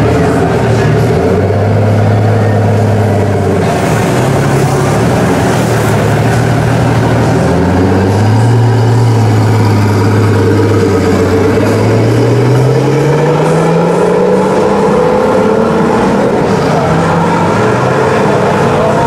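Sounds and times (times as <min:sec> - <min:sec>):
car engine deep drone: 0:00.0 - 0:19.0.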